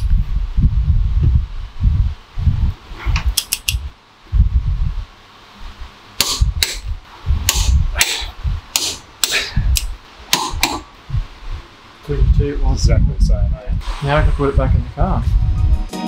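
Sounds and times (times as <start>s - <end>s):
torque wrench clicking: 3.4s - 3.8s.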